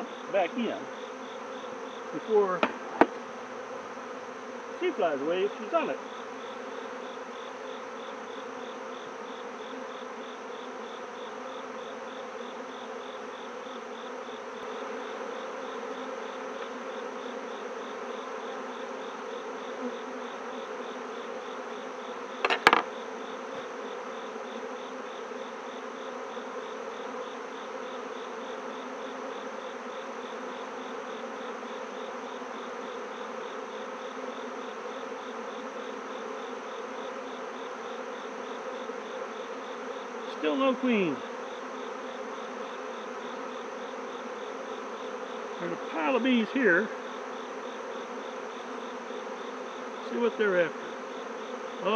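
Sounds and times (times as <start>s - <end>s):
bees buzzing: 0.0s - 51.9s
sharp knock: 2.6s - 3.2s, 22.4s - 22.9s.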